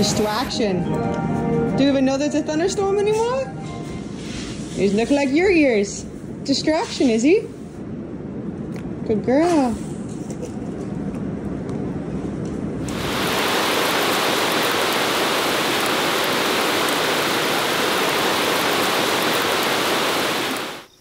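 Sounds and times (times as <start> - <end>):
heavy rain: 12.8 - 21.0.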